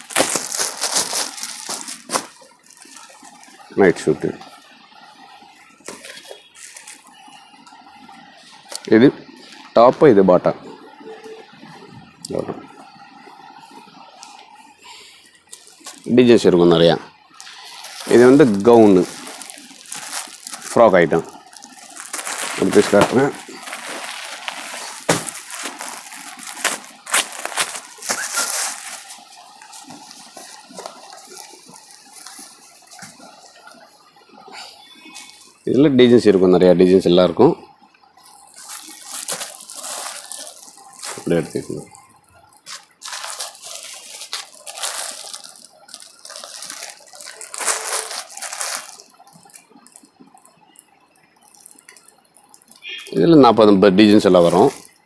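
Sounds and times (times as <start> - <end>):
plastic packet crinkling: 0.0 - 4.6, 5.5 - 7.4, 14.0 - 16.4, 17.3 - 34.1, 34.8 - 35.6, 38.2 - 55.0.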